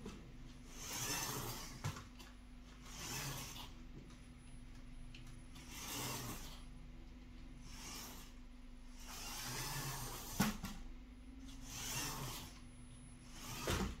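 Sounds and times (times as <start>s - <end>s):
toy motor and gears whirring: 0.6s - 2.0s, 2.8s - 3.8s, 5.5s - 6.7s, 7.6s - 10.7s, 11.4s - 14.0s.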